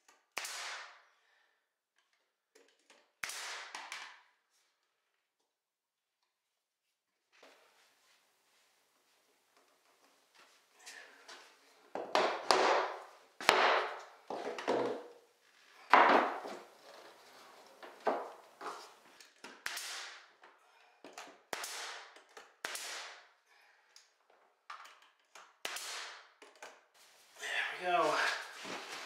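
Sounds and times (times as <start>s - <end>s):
nail gun pops: 0.3s - 0.9s, 3.2s - 4.2s, 19.4s - 20.2s, 21.2s - 23.2s, 24.7s - 26.8s.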